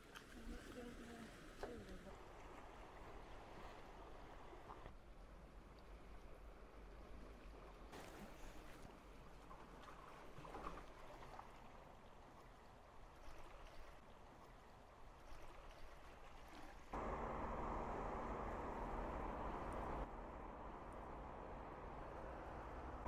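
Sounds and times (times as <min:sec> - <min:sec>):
lapping water: 0:00.0 - 0:05.0, 0:07.2 - 0:17.0
wind: 0:00.0 - 0:23.0
low steady hum: 0:16.9 - 0:23.0.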